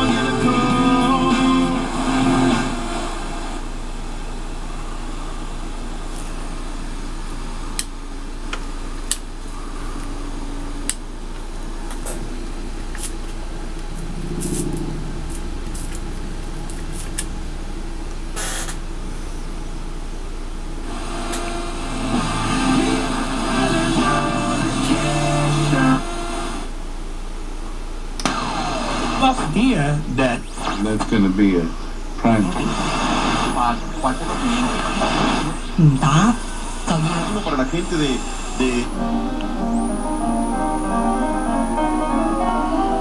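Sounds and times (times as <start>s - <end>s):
radio static hiss: 0.0s - 26.8s, 28.3s - 43.0s
radio broadcast fragments: 28.3s - 39.9s
sharp radio crackles: 29.2s - 39.8s.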